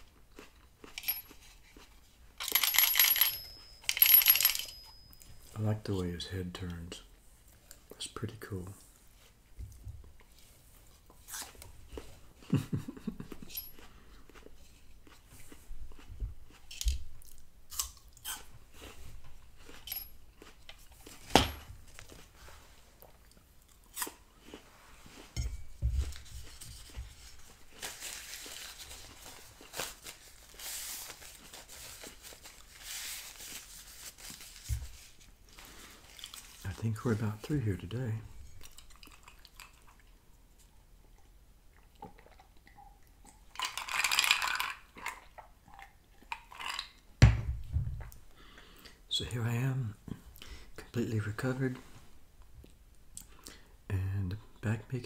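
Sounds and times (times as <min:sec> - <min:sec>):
crunching and handling sounds: 0:13.4 - 0:39.8
rustling: 0:24.6 - 0:37.5.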